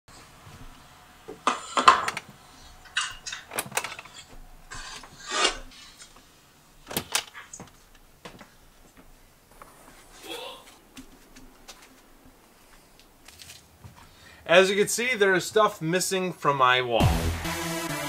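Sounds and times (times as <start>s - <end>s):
handling rustles and knocks: 0.4s - 14.1s.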